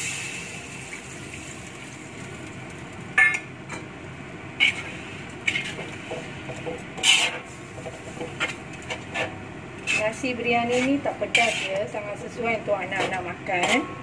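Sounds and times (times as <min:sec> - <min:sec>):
metal ladle scraping a wok: 0:04.6 - 0:06.3, 0:07.0 - 0:12.0, 0:12.8 - 0:14.0.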